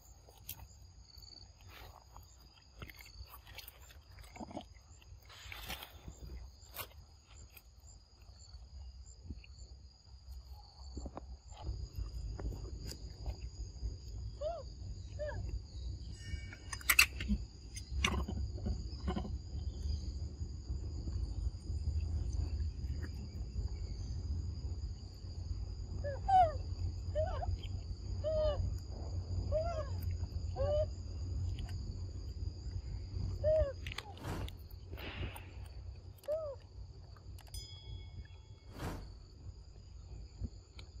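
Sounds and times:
forest insects droning: 0.0s - 41.0s
animal calling: 29.5s - 31.0s.

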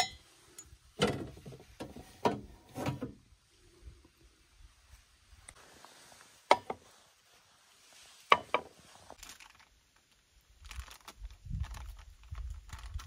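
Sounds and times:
metal coffee pot clinking: 0.0s - 3.0s
faint rustling: 4.9s - 9.7s.

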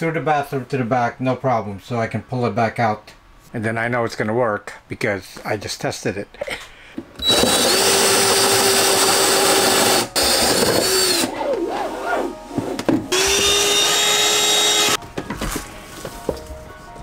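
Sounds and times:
cordless drill boring wood: 7.2s - 11.3s, 13.1s - 15.0s
handheld vacuum running: 7.2s - 11.4s, 13.1s - 15.0s.

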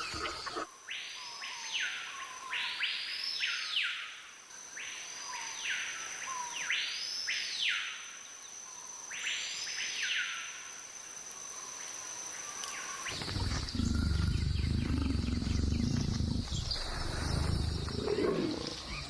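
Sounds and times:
high insect whine: 8.2s - 19.0s
deep low growl: 13.1s - 19.0s.

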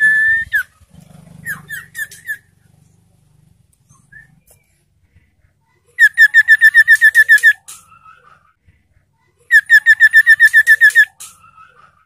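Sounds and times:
bird whistled notes: 0.0s - 0.7s, 6.0s - 8.1s, 9.5s - 11.8s.

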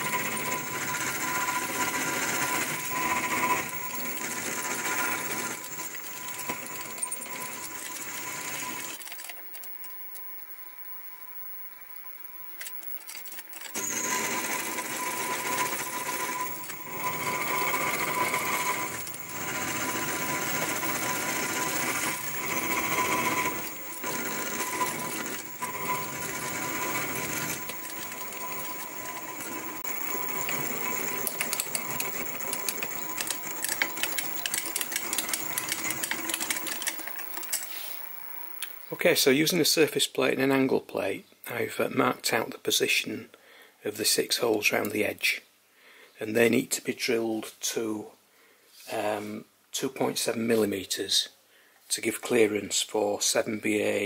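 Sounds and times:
milling machine whining: 0.0s - 38.9s.

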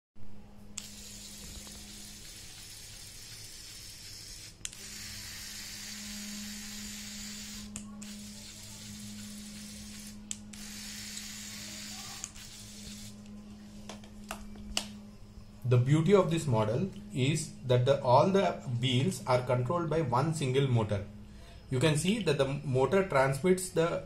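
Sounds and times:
electric motor humming: 0.8s - 13.4s.

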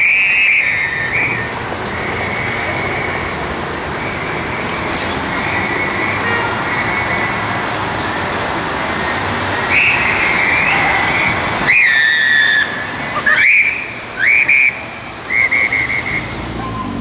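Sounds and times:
passing traffic: 0.0s - 17.0s.

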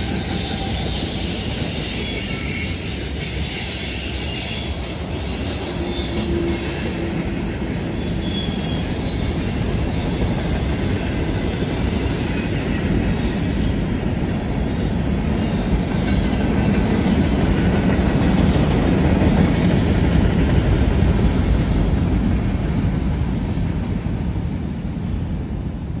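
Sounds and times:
faint wheel squeal: 0.0s - 17.3s
train wheels rolling on rail: 0.0s - 26.0s.

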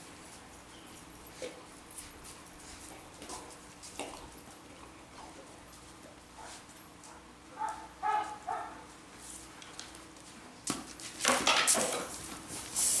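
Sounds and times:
dog yipping: 7.6s - 8.8s.

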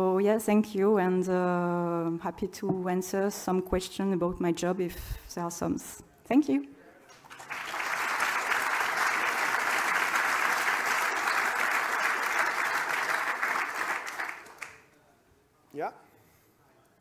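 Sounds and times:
audience applauding: 7.1s - 14.9s.

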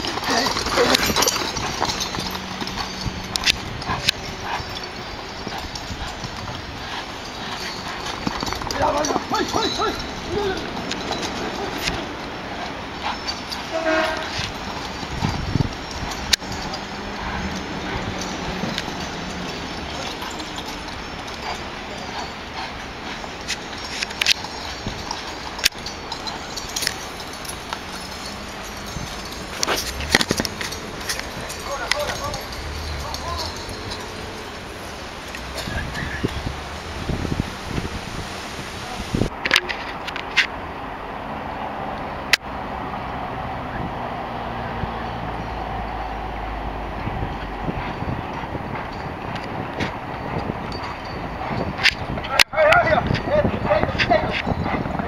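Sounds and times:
horses galloping on sand: 0.0s - 40.6s, 43.0s - 55.0s
steady background hiss: 30.6s - 39.3s.

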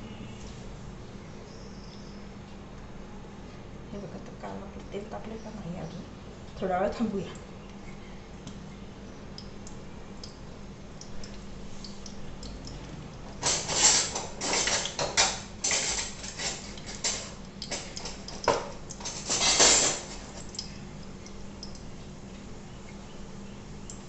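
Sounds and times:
utensils and pans clattering: 13.4s - 20.4s.

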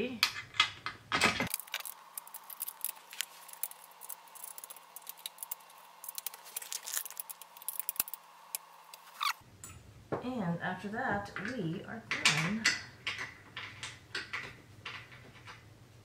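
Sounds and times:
allen key turning screws: 0.3s - 8.2s.

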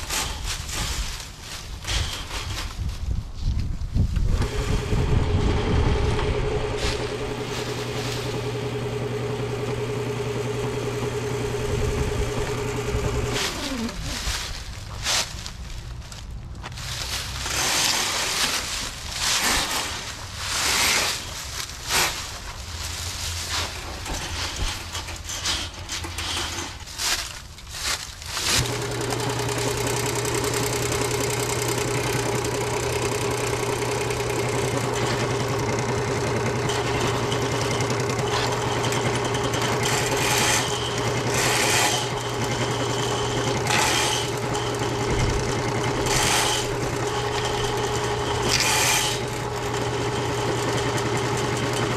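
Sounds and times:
electric motor humming: 4.3s - 14.2s, 28.4s - 51.9s
cable sections clattering: 23.2s - 51.9s.

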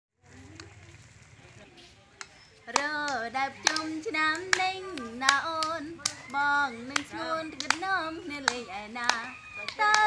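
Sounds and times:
hands clapping: 2.2s - 10.0s
woman singing: 2.7s - 10.0s.

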